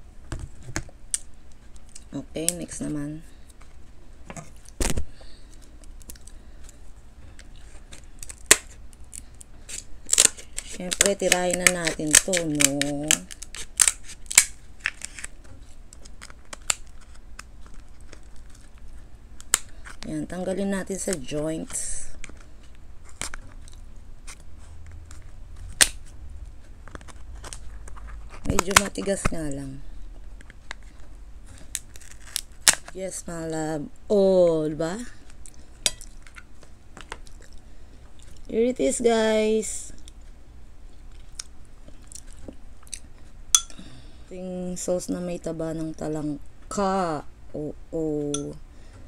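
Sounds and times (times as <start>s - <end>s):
scissors cutting crab shell: 9.7s - 15.3s.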